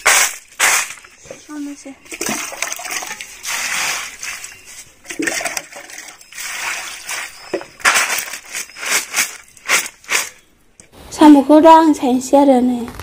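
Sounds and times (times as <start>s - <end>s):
water draining onto concrete: 2.1s - 7.6s.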